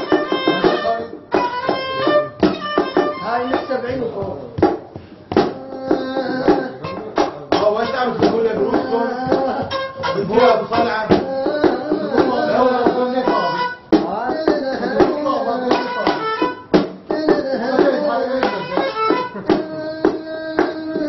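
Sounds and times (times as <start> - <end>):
bowed fiddle melody: 0.0 - 4.4, 5.8 - 14.0, 14.8 - 16.8, 18.0 - 20.0.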